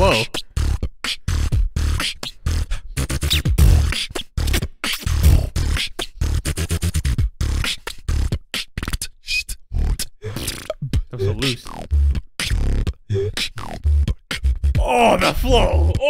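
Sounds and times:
person beatboxing: 0.0 - 16.0.

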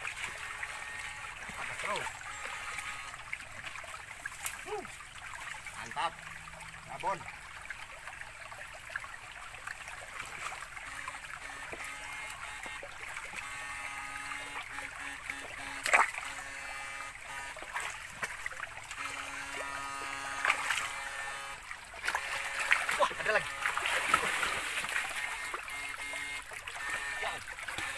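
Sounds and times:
electrical buzzing hum: 0.0 - 7.8, 9.7 - 27.9
water trickling around boots: 0.0 - 27.9
sharp water splash: 7.9 - 27.9.

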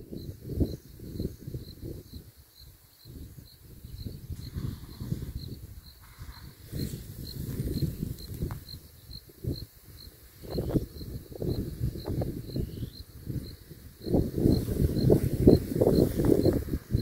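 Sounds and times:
cricket chirping: 0.0 - 17.0
wind rumble on microphone: 0.0 - 17.0.

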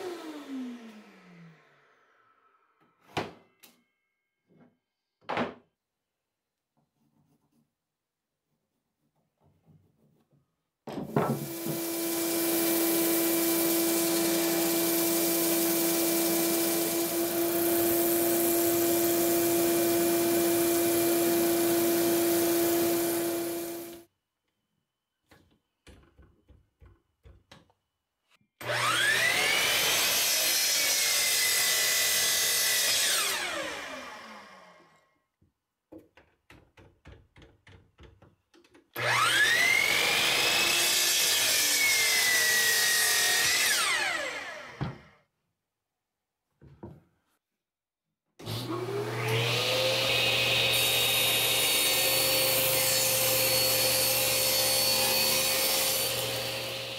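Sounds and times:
bandsaw humming: 11.2 - 24.0, 48.6 - 56.9.

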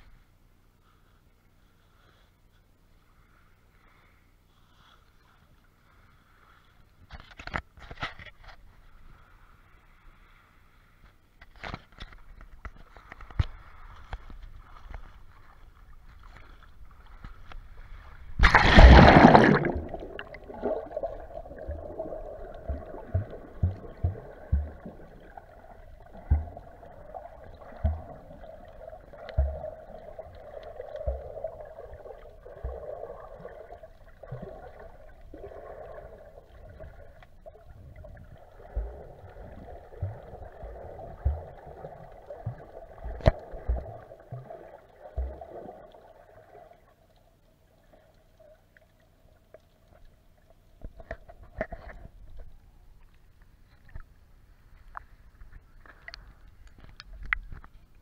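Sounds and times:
underwater gurgling hum: 12.2 - 58.0
camera splashing into water: 18.4 - 21.0.

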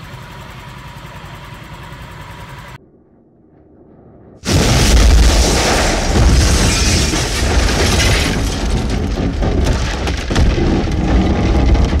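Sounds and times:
sharp hits and crackles: 3.8 - 12.0.

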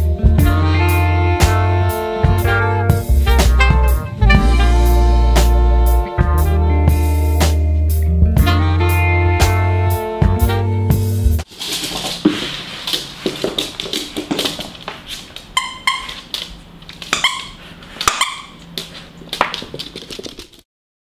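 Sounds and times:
paws and toy tapping on floor: 12.2 - 20.6.

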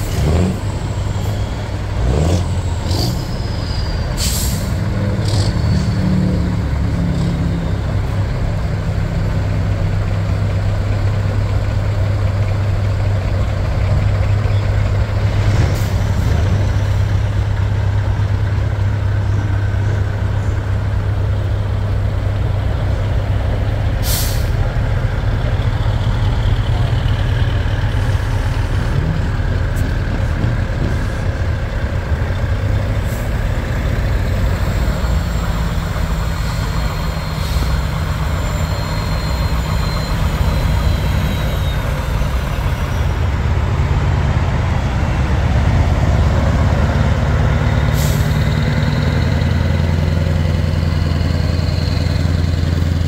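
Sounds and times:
truck engine droning: 0.0 - 53.0
air brake hisses: 4.1 - 4.8, 24.0 - 24.6, 47.9 - 48.5.

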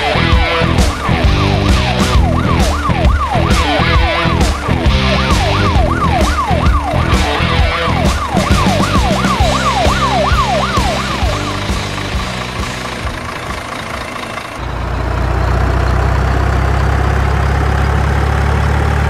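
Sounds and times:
electronic siren sweeping: 0.0 - 13.1
background music with beat: 0.0 - 13.2.

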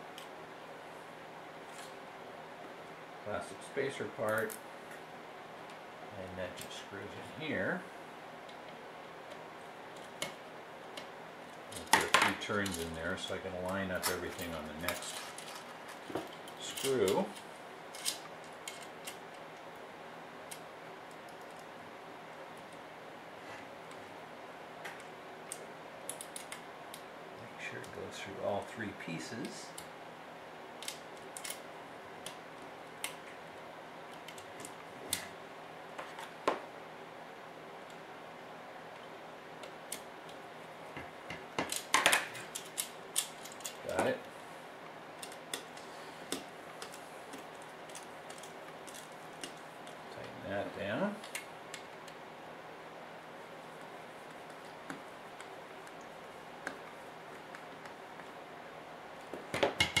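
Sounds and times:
small clicks and taps of parts: 8.4 - 11.1, 17.9 - 19.7, 24.8 - 27.1, 30.8 - 31.6, 32.2 - 33.4, 45.2 - 50.3.

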